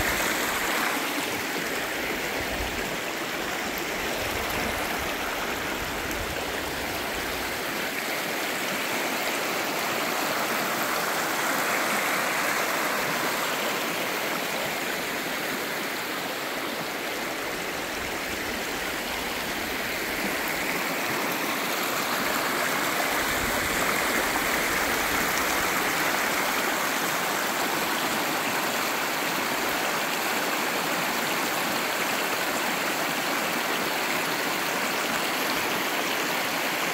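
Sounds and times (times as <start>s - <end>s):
stream babbling over stones: 0.0s - 36.9s.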